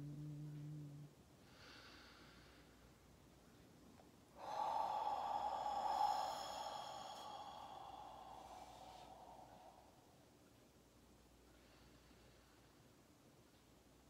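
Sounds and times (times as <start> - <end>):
long breathy exhale: 4.4 - 10.2.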